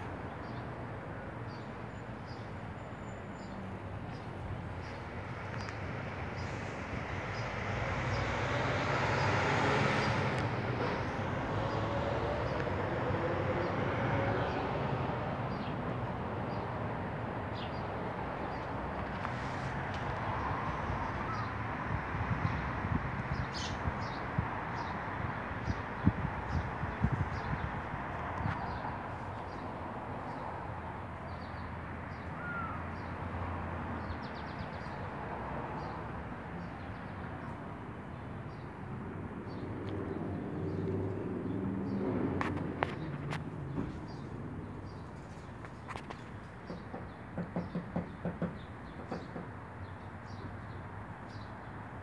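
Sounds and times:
distant traffic rumble: 0:00.0 - 0:52.0.

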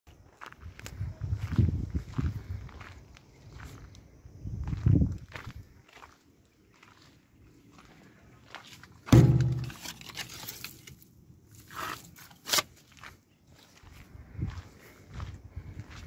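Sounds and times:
footsteps on dry ground: 0:00.1 - 0:10.9, 0:11.5 - 0:16.0
loud ringing knock: 0:09.1 - 0:09.8.

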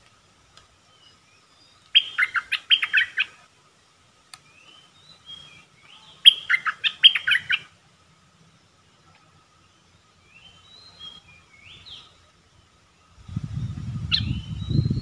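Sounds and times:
soft bird calls: 0:00.0 - 0:15.0
bird singing whistled notes: 0:00.9 - 0:03.4, 0:04.4 - 0:07.8, 0:09.6 - 0:15.0.

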